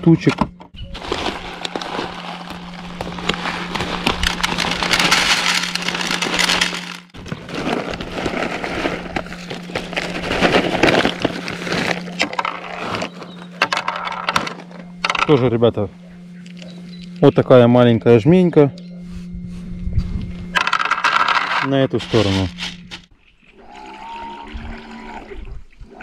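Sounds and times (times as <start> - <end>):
steady low hum: 0.0 - 26.0
plastic bags crinkling: 0.8 - 14.8
pellets being poured: 1.0 - 13.1.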